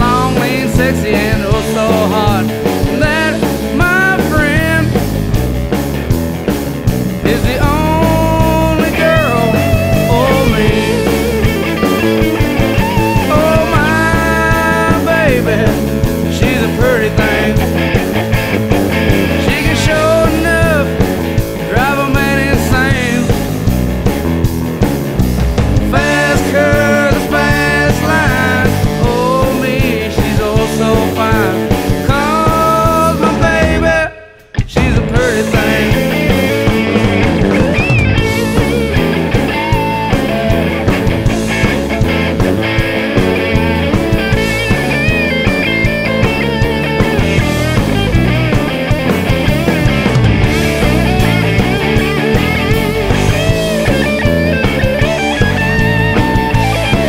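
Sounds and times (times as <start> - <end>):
man singing: 0.0 - 5.2, 7.2 - 18.0, 19.1 - 23.8, 25.8 - 37.9, 46.9 - 48.0
drum kit: 0.0 - 57.0
electric guitars: 0.0 - 57.0.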